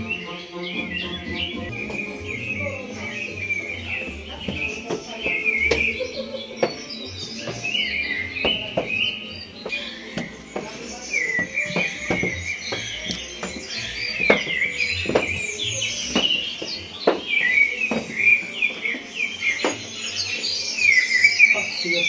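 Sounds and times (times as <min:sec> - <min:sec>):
small birds chirping: 0:00.0 - 0:22.0
dull knocks: 0:08.4 - 0:10.8, 0:11.4 - 0:18.3.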